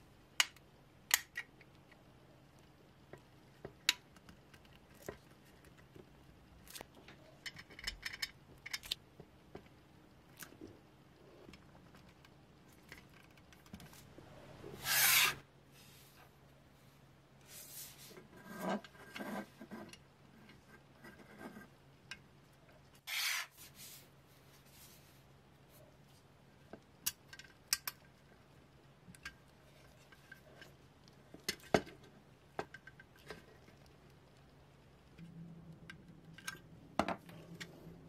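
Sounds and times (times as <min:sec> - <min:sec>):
rubbing strokes: 0:14.7 - 0:16.2, 0:23.0 - 0:25.2.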